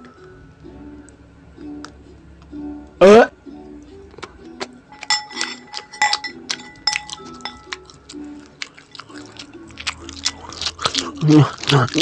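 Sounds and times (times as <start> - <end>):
soft background music: 0.0 - 12.0
fork clinking on ceramic plate: 4.9 - 8.0.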